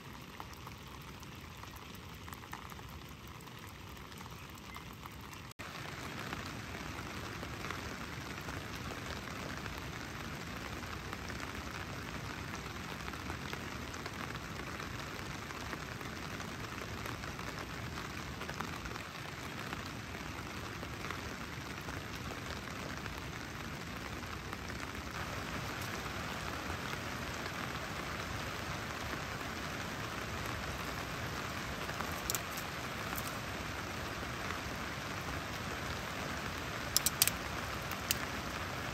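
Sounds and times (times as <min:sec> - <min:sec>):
steady rain falling: 0:00.0 - 0:38.9
sharp snaps: 0:36.9 - 0:38.3.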